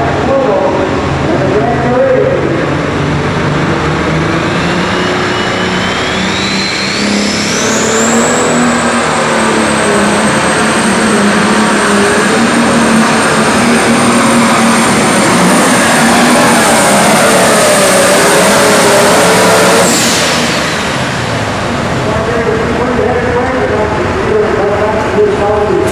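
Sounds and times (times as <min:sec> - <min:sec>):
diesel tractor engine at full throttle: 0:00.0 - 0:25.9
high turbo whistle: 0:04.2 - 0:21.8.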